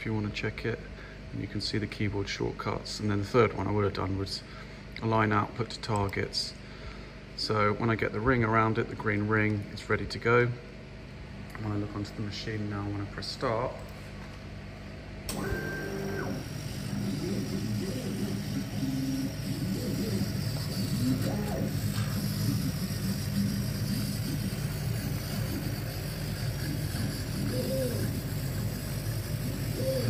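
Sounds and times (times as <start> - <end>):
machine hum: 0.0 - 30.0
gantry motors whining: 15.3 - 30.0.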